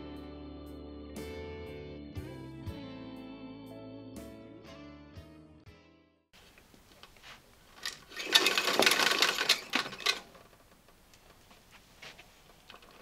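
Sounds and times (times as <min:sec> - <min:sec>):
vacuum cord rewinding rattle: 0:07.8 - 0:11.5, 0:12.4 - 0:13.0.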